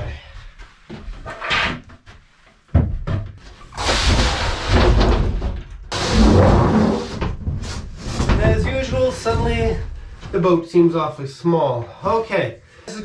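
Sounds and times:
plywood scraping across wooden table: 5.9 - 9.8.

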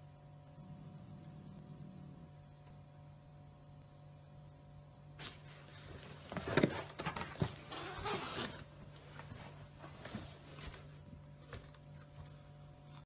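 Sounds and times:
cardboard rustling and scraping: 5.2 - 12.6
cats scuffling: 5.2 - 12.8.

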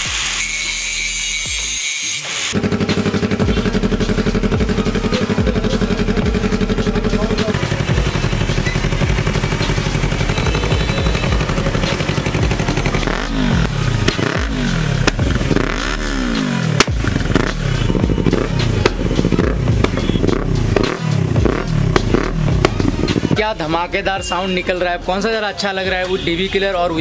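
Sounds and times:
motorcycle engine idling and revving: 2.5 - 24.9
exhaust crack: 2.6 - 23.8.

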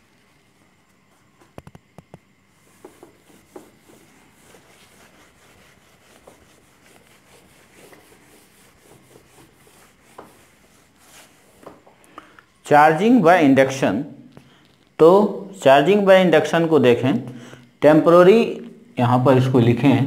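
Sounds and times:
duster rubbing whiteboard: 2.5 - 11.9.

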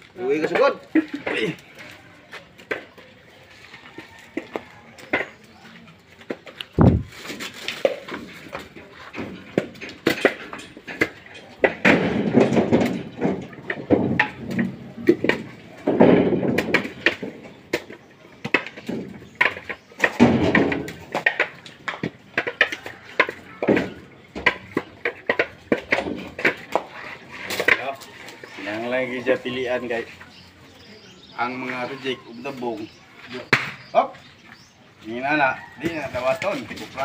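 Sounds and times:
coconuts knocking together: 0.0 - 1.8, 3.9 - 29.5, 32.8 - 33.9.

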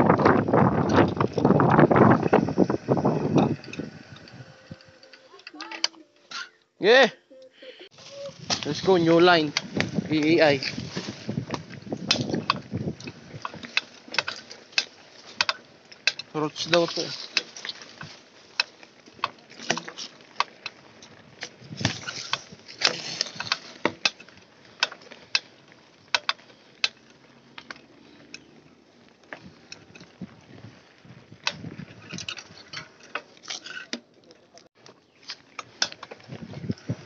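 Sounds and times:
low rush of riding noise: 0.0 - 6.2, 6.8 - 33.4
bike knocking over bumps: 8.4 - 27.8.

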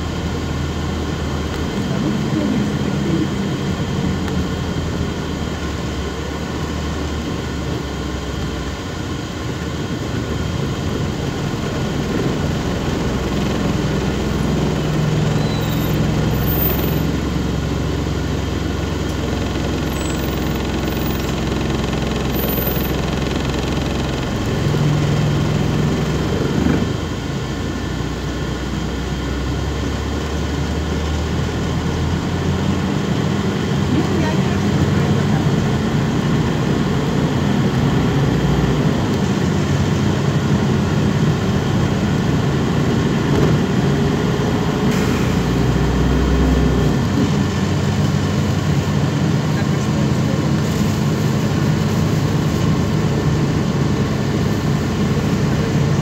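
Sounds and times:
bus engine hum: 0.0 - 56.0
road noise: 0.0 - 56.0.

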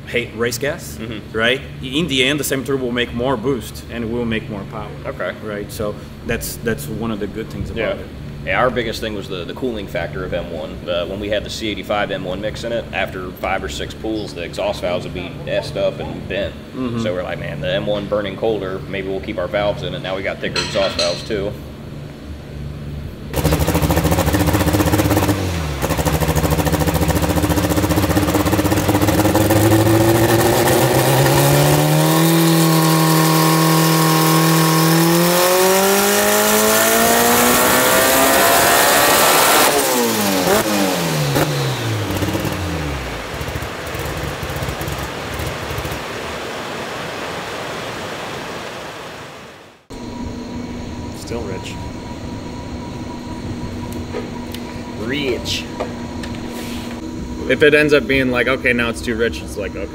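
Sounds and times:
turbocharged car engine revving: 23.3 - 46.4.

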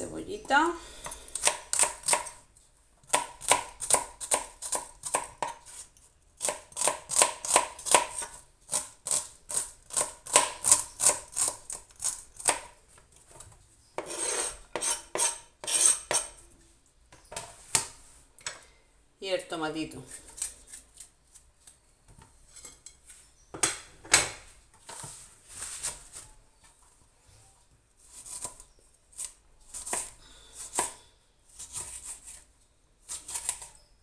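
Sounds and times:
knife chopping onion: 1.0 - 2.4, 3.0 - 12.8, 14.0 - 16.4, 29.2 - 31.0, 33.0 - 33.8
knife scraping: 14.0 - 16.5, 20.0 - 21.8, 31.6 - 33.9.

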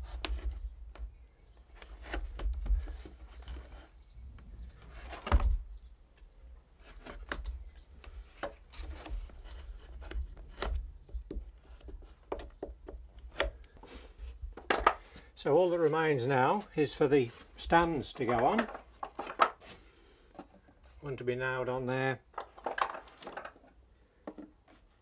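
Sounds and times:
knife cutting and scraping wood: 6.8 - 15.9.

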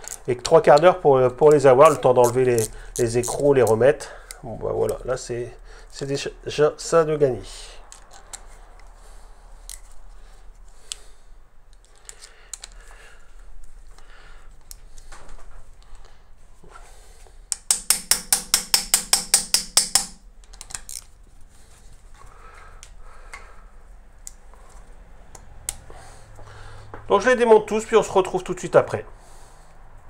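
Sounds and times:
metal hand tools clicking: 17.5 - 21.1.

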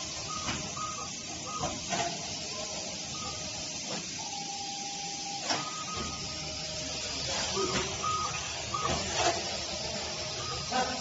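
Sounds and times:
machinery hissing: 0.0 - 11.0.

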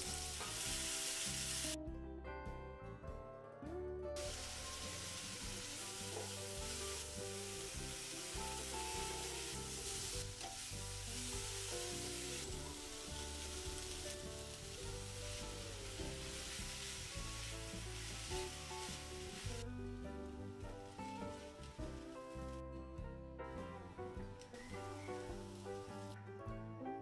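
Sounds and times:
vegetables sizzling in oil: 0.0 - 1.8, 4.2 - 22.6, 24.4 - 26.2
wooden spatula stirring in pan: 4.2 - 19.6.

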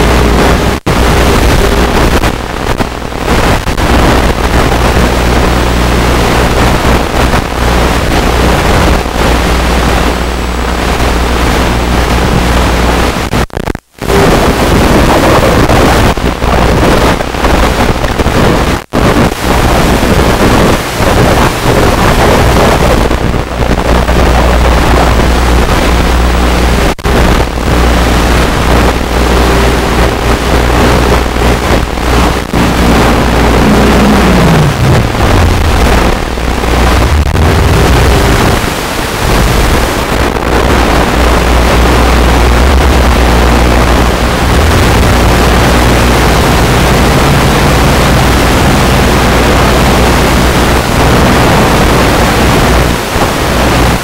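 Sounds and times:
wind rushing: 27.1 - 50.3.

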